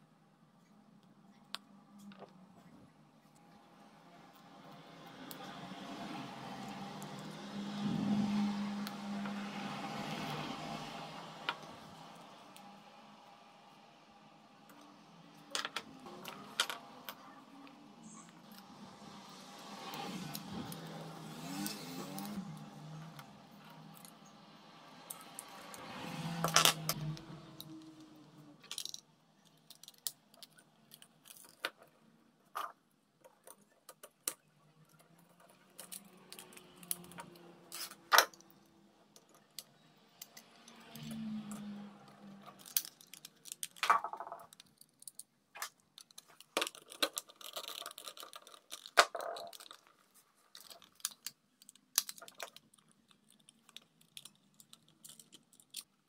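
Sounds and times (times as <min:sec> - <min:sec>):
small hard parts clicking: 0:26.4 - 0:56.0.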